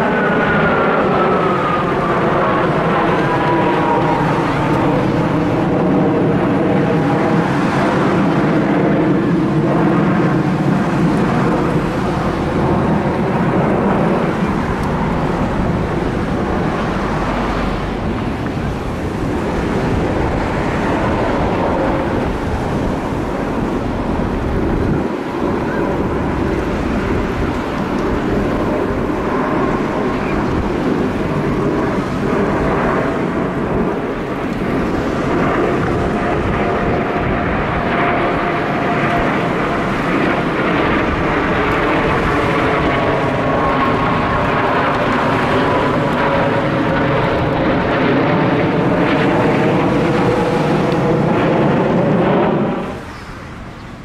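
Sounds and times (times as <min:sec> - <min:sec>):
jet aircraft roaring overhead: 0:00.0 - 0:54.0
wind buffeting microphone: 0:00.0 - 0:54.0.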